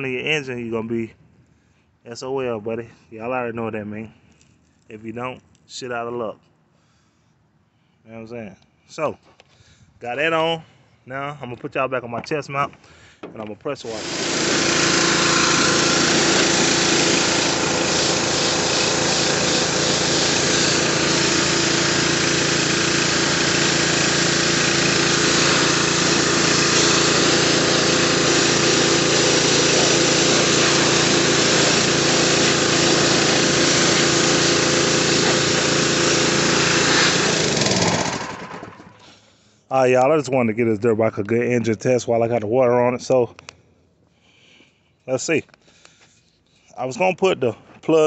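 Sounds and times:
pressure washer motor drone: 13.8 - 39.0
high-pressure water jet hissing: 13.9 - 38.3.

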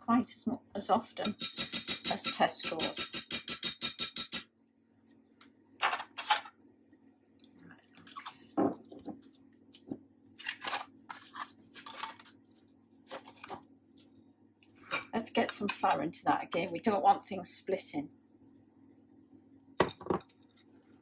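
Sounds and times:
faint steady hum: 0.0 - 21.0
glass bottle knocking on worktop: 19.8 - 20.2.

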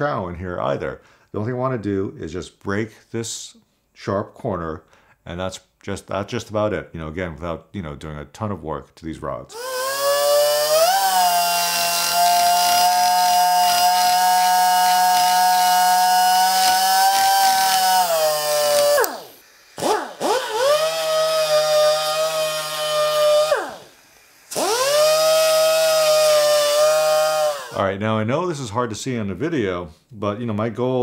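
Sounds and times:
die grinder high whine: 9.5 - 27.8
grinder motor winding down: 9.5 - 27.8.

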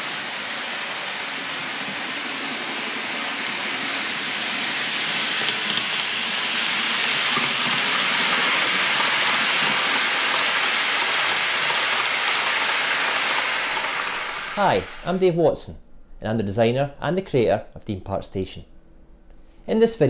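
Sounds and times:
model train rushing past: 0.0 - 15.7.

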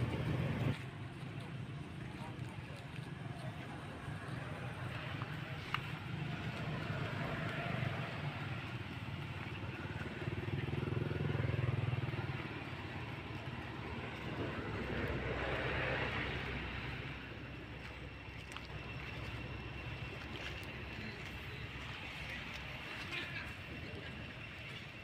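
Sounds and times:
low engine rumble: 0.0 - 25.0.

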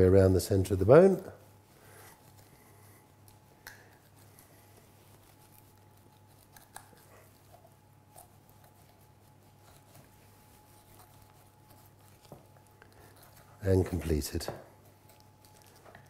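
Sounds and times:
steady low hum: 0.0 - 16.0
knife clicking and scraping meat: 3.2 - 4.4, 5.1 - 10.1, 10.8 - 16.0.

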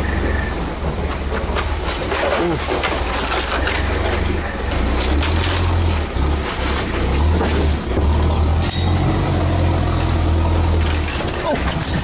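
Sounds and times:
truck engine drone: 0.0 - 12.0
vehicle body knocks and rattles: 0.8 - 9.0.

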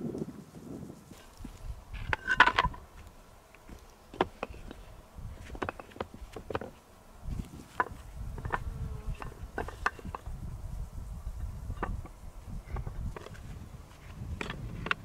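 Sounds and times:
stones clacking and scraping: 1.1 - 6.8.

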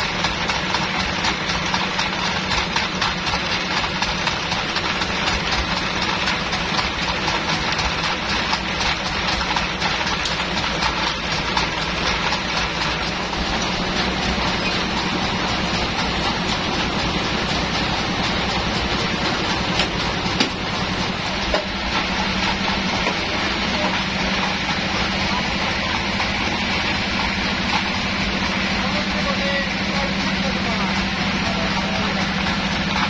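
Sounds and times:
band saw and engine running: 0.0 - 33.0.

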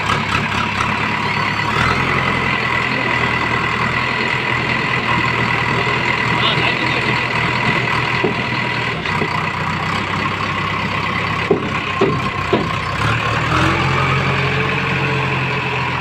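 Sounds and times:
diesel engine under load: 0.0 - 16.0
short knocks: 7.5 - 9.4, 11.4 - 12.8.

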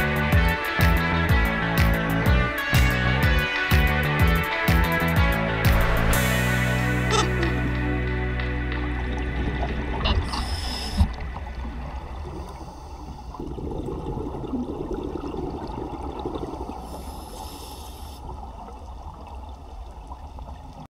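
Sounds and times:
low rumble of water: 5.5 - 20.9
diver breathing through regulator: 10.2 - 11.2, 12.3 - 13.5, 16.8 - 18.3
bubbling exhalation: 12.2 - 17.2.

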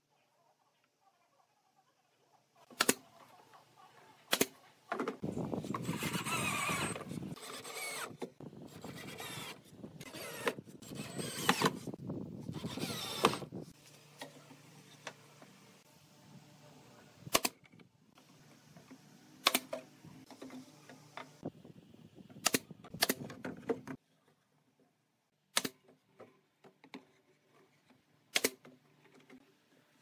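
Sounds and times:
wooden slats squealing and scraping: 5.2 - 13.6.

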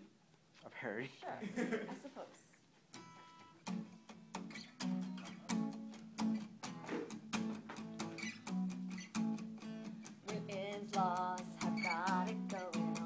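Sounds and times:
acoustic guitar strumming: 2.9 - 13.0.

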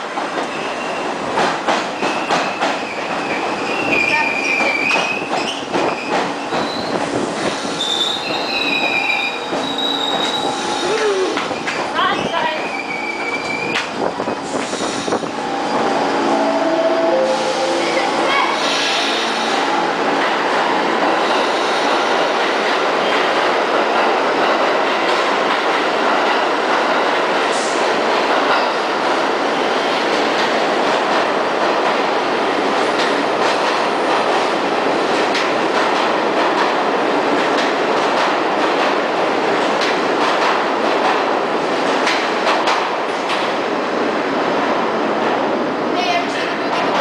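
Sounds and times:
subway train wheels rumbling: 0.0 - 47.0.

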